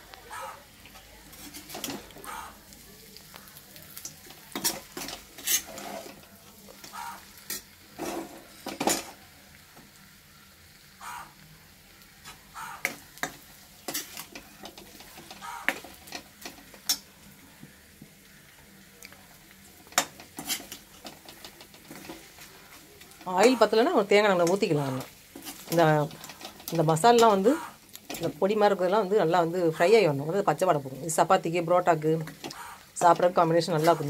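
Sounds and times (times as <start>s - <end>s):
food sizzling in oil: 0.0s - 34.0s
ladle scraping iron pan: 1.3s - 2.4s, 4.5s - 6.2s, 6.8s - 9.1s, 19.9s - 23.7s, 24.4s - 28.3s.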